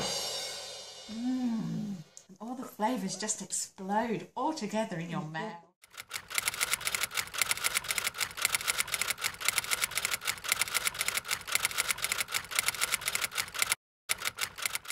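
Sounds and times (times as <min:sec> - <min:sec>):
rapid mechanical clicking: 0:05.8 - 0:14.9.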